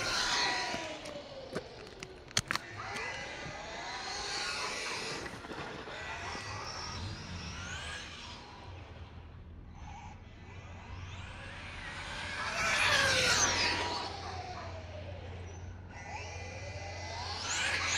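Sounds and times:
electric motor whining: 0:00.0 - 0:05.4
sharp clicks: 0:01.0 - 0:03.2.

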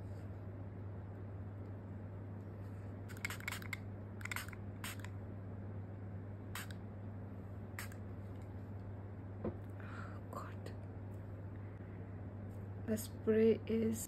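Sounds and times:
spray bottle pump hissing: 0:03.1 - 0:05.1.

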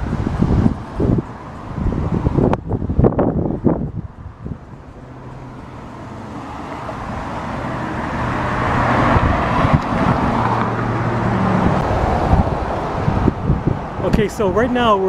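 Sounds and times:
road traffic noise: 0:00.0 - 0:15.0.

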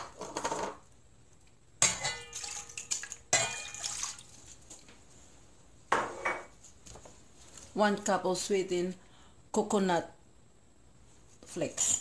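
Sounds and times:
liquid pouring into metal pot: 0:02.0 - 0:04.5.

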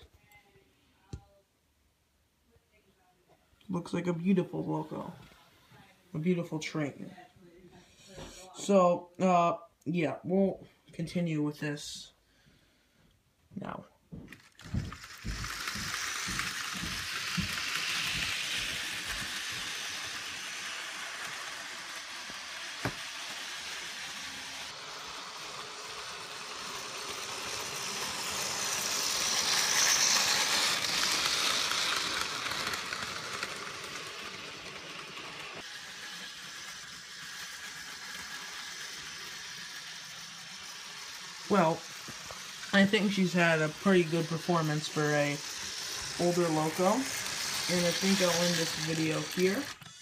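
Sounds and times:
model train whirring hiss: 0:14.3 - 0:50.0.

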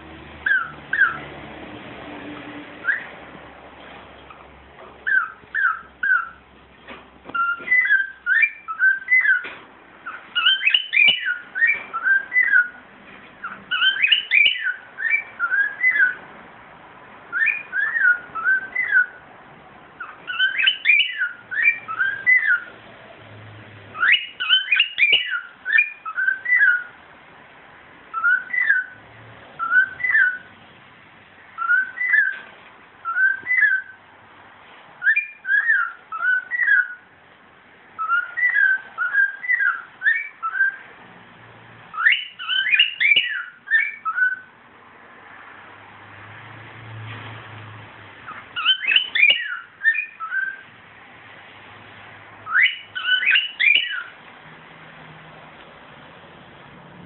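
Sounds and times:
cockatiel whistling: 0:00.4 - 0:01.2, 0:02.8 - 0:03.1, 0:05.0 - 0:06.4, 0:07.3 - 0:12.8, 0:13.4 - 0:16.2, 0:17.3 - 0:19.2, 0:20.0 - 0:22.7, 0:24.0 - 0:27.0, 0:28.1 - 0:29.0, 0:29.6 - 0:30.5, 0:31.6 - 0:32.4, 0:33.0 - 0:34.0, 0:35.0 - 0:37.0, 0:38.0 - 0:40.8, 0:41.9 - 0:44.5, 0:48.3 - 0:50.6, 0:52.4 - 0:54.1.

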